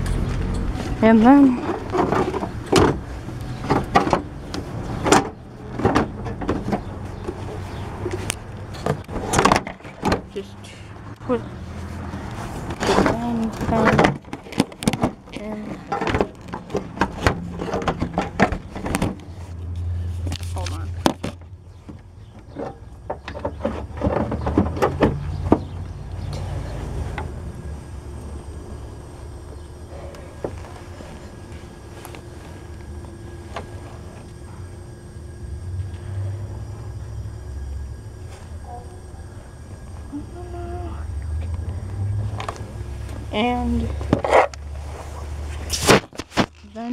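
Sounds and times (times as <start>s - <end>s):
low steady hum: 0.0s - 46.9s
knocks and clicks of car parts: 1.6s - 7.4s, 8.0s - 10.3s, 15.9s - 19.2s, 21.0s - 26.5s.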